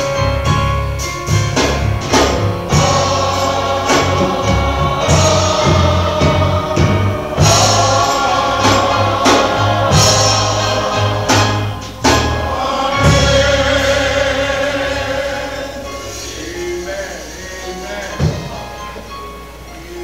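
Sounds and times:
bass notes: 0:00.0 - 0:17.2
sharp drum hits: 0:01.3 - 0:14.2
gospel choir singing: 0:01.3 - 0:20.0.

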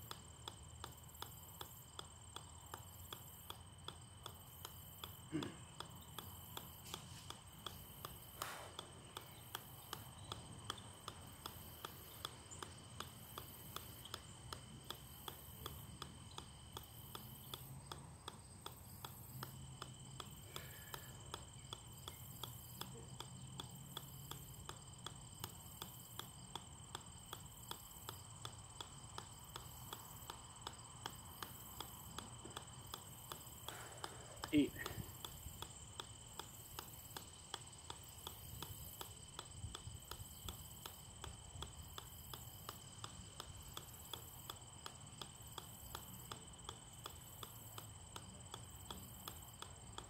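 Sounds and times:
ball bouncing on metal: 0:00.0 - 0:50.0.

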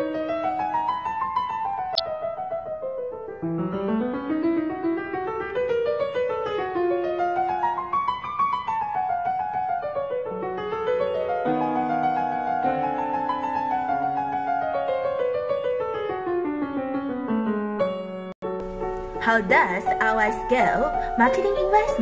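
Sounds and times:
piano music with quick runs: 0:00.0 - 0:22.0.

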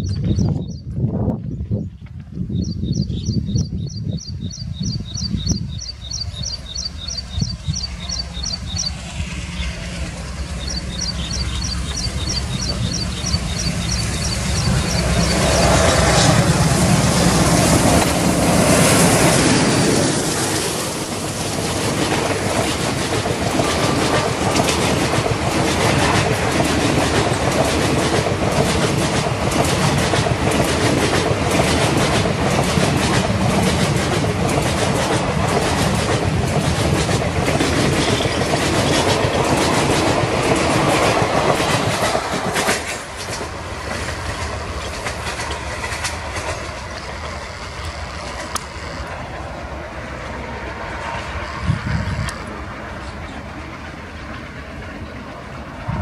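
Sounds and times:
train rolling roar: 0:00.0 - 0:01.3, 0:02.5 - 0:56.0
train wheels clattering: 0:06.1 - 0:49.4.

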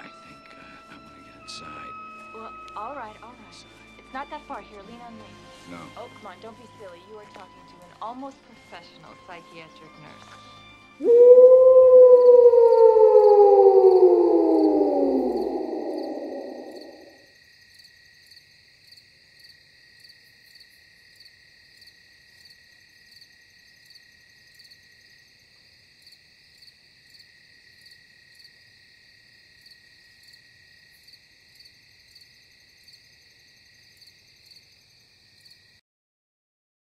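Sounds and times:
falling wail: 0:11.0 - 0:17.2
high insect drone: 0:11.0 - 0:35.7
crickets chirping: 0:11.0 - 0:35.8.

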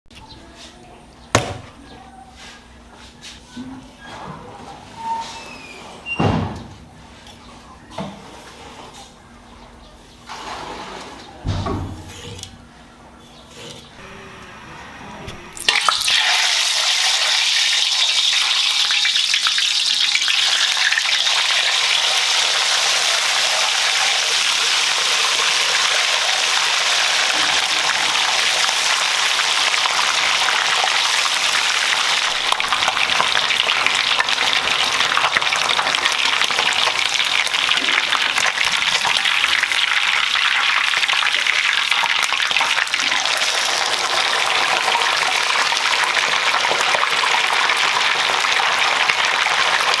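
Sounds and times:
oil sizzling and bubbling: 0:15.4 - 0:50.0.

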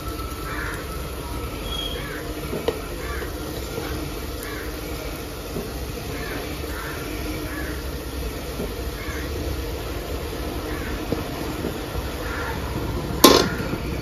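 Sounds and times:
masala sizzling in a pressure cooker: 0:00.0 - 0:14.0
crows cawing: 0:00.4 - 0:01.0, 0:01.6 - 0:05.2, 0:06.0 - 0:08.0, 0:08.9 - 0:09.6, 0:10.5 - 0:11.4, 0:12.0 - 0:13.8.

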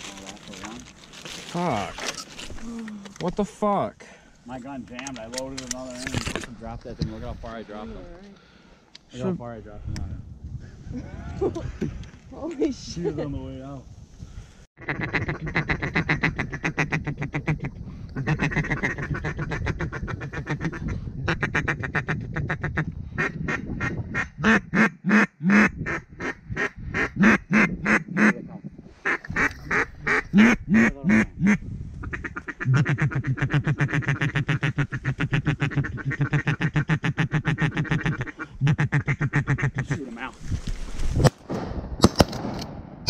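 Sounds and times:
duck call quacks: 0:14.8 - 0:17.6, 0:29.0 - 0:39.9.

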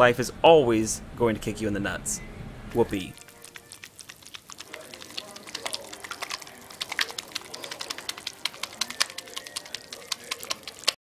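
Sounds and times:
sharp clicks and taps: 0:03.4 - 0:11.0.

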